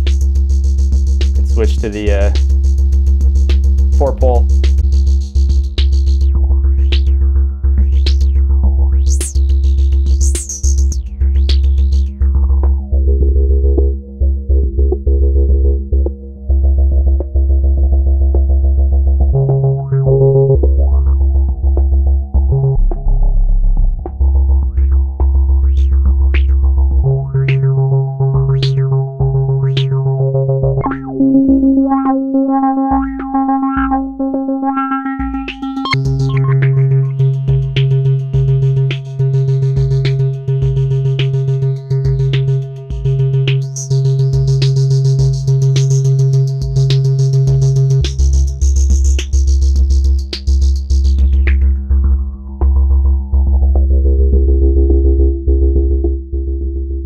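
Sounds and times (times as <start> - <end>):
synthesizer techno with filter sweeps: 0.0 - 2.5, 24.7 - 49.6
drum machine hits: 0.0 - 6.2, 35.2 - 53.1.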